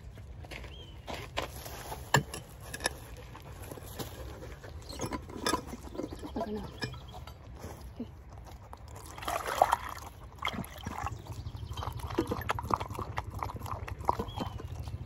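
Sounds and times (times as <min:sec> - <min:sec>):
dog lapping water: 0:08.6 - 0:15.0
water pouring into plastic bowl: 0:08.9 - 0:14.5.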